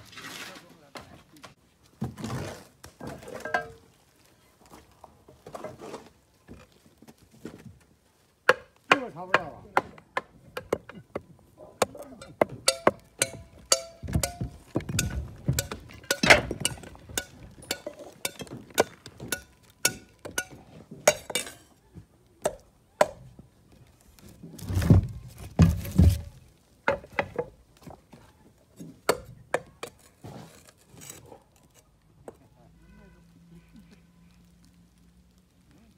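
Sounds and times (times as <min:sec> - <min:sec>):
tiles clinking and knocking: 0:12.2 - 0:21.8.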